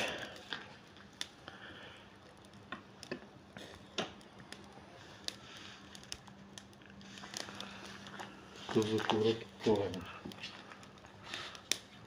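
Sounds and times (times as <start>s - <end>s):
charcoal crackling: 0.0s - 12.0s
faint steady hum: 0.0s - 12.0s
metal skewers clicking on grill: 11.3s - 11.9s.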